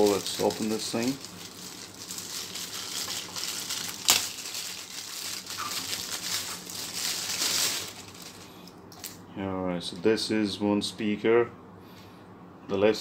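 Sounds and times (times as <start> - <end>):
plastic bag crinkling: 0.0 - 9.1.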